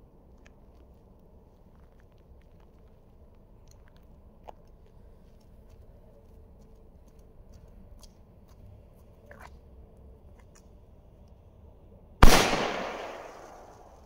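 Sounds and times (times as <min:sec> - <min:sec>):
low background noise: 0:00.0 - 0:14.0.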